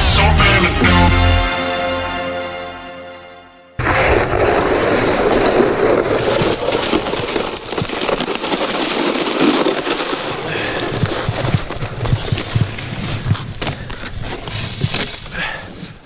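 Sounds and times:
snowboard scraping over crusty snow: 0:03.8 - 0:16.0
wind noise on microphone: 0:10.9 - 0:15.1.

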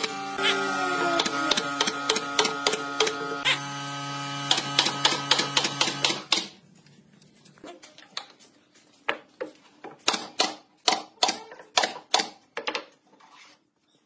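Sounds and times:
nail gun firing into wood: 0:00.4 - 0:03.2, 0:04.4 - 0:06.6.

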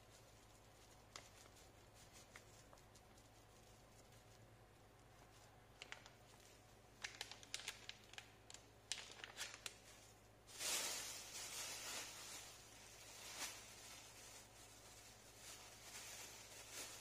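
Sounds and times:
plastic bag rustling: 0:05.2 - 0:17.0
plastic packet crinkling: 0:05.7 - 0:17.0.

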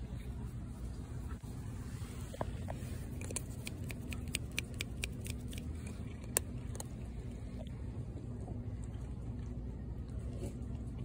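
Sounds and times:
low hum: 0:00.0 - 0:11.0
cat crunching dry kibble: 0:02.5 - 0:11.0.

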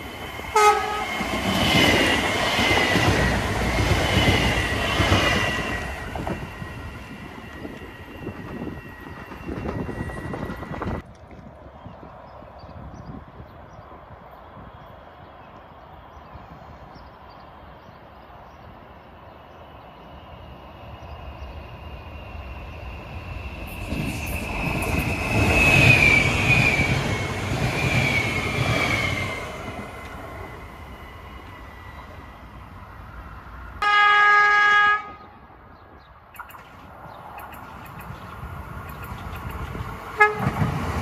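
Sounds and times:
train passing on track: 0:00.0 - 0:41.0
train horn blast: 0:00.5 - 0:01.1, 0:33.8 - 0:35.4, 0:40.2 - 0:40.7
high-pitched falling whine: 0:23.0 - 0:26.8.

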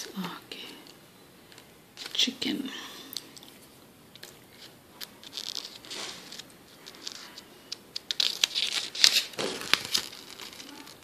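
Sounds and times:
paper pages rustling: 0:03.4 - 0:11.0.

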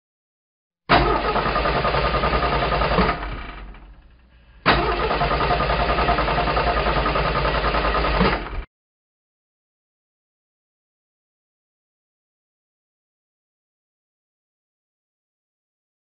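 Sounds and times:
go-kart engines running: 0:00.9 - 0:08.6.

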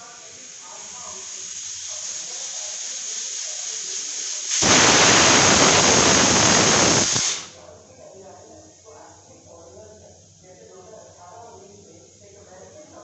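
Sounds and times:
pressure cooker steam hiss: 0:00.0 - 0:07.6
pressure cooker whistle: 0:04.3 - 0:07.5.

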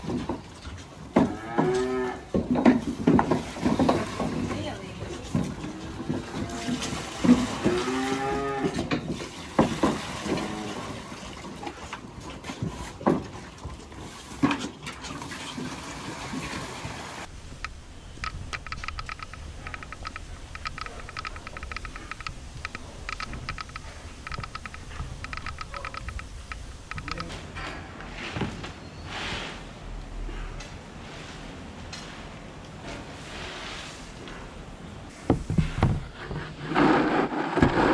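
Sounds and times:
cattle mooing: 0:01.2 - 0:02.3, 0:05.7 - 0:08.9, 0:10.2 - 0:11.0
rapid irregular clicking rattle: 0:18.2 - 0:27.3.

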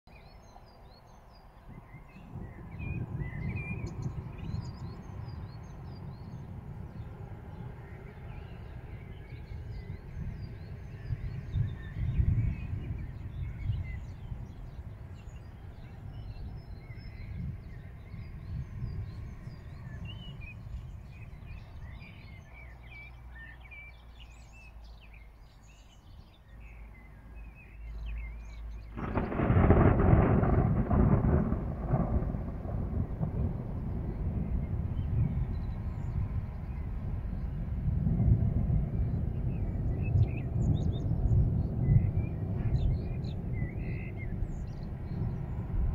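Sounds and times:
birds chirping and singing: 0:00.1 - 0:31.4, 0:38.9 - 0:45.9
low uneven rumble: 0:28.1 - 0:45.9.

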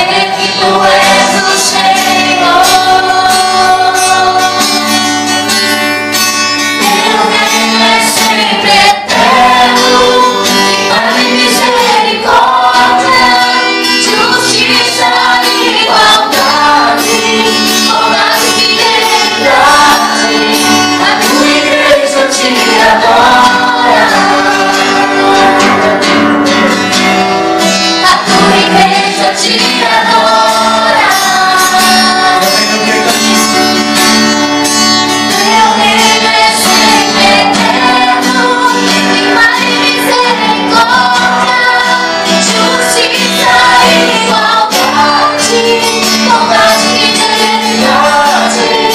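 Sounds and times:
acoustic guitar: 0:00.0 - 0:48.9
woman singing gospel song: 0:06.8 - 0:25.9, 0:28.0 - 0:32.8, 0:35.4 - 0:48.9.

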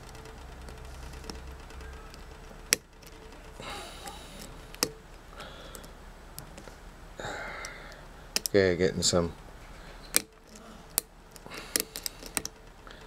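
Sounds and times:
lock pick working pins: 0:00.0 - 0:06.6, 0:10.0 - 0:13.0
sharp metallic clicks: 0:00.0 - 0:06.6, 0:07.6 - 0:08.6, 0:10.1 - 0:13.0.

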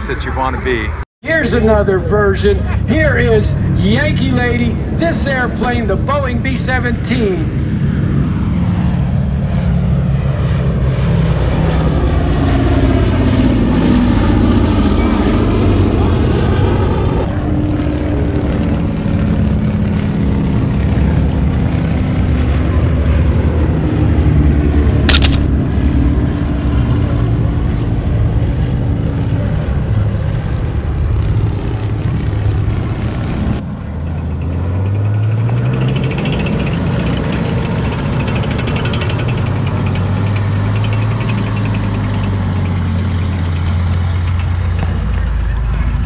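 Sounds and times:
propeller plane engines droning: 0:00.0 - 0:46.0
tank engine revving: 0:07.5 - 0:46.0
sharp click: 0:25.1 - 0:25.6.

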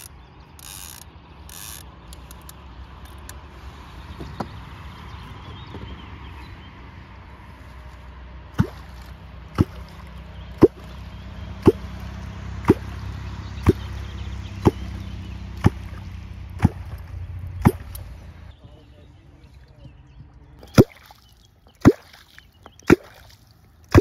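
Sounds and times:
wooden clonk striking water: 0:08.6 - 0:13.0, 0:15.6 - 0:18.1, 0:20.6 - 0:24.0.

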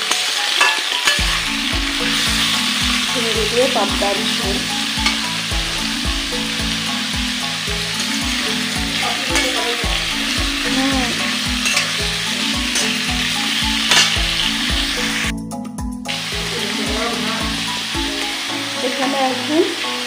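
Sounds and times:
metal spatula scraping and knocking pan: 0:00.0 - 0:01.5, 0:04.9 - 0:05.5, 0:07.8 - 0:14.6
vegetables sizzling in hot oil: 0:00.0 - 0:15.3, 0:16.1 - 0:20.0.

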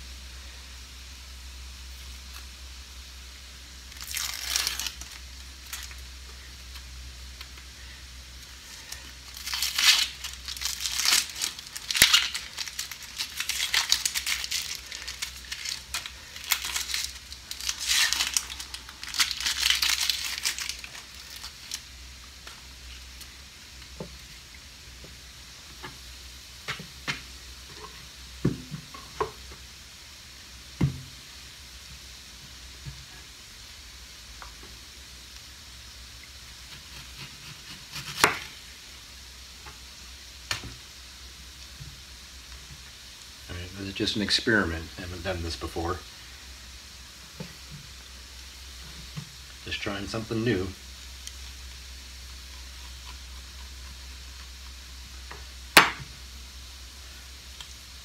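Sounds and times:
onion skin crackling and tearing: 0:03.8 - 0:06.0, 0:08.4 - 0:23.3, 0:36.6 - 0:38.6.

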